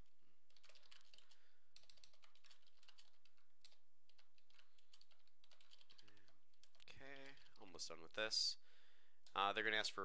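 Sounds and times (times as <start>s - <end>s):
computer keyboard typing: 0.5s - 8.1s.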